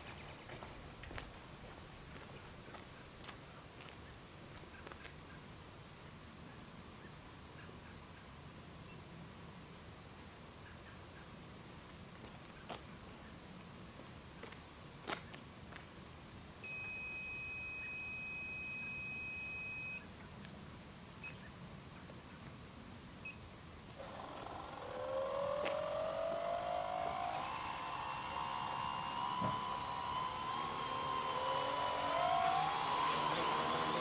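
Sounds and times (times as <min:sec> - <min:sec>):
drone motors whining: 0:23.9 - 0:34.0.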